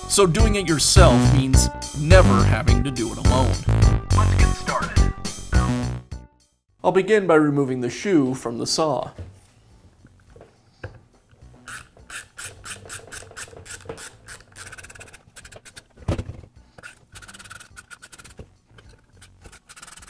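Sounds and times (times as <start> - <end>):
hand tool metallic scraping clicks: 11.6 - 15.9, 16.7 - 20.0.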